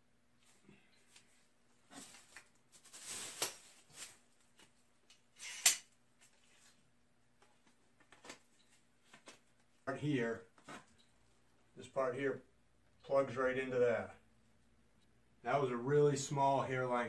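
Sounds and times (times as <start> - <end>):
handling rustles and scrapes: 0.4 - 4.8, 5.4 - 9.7.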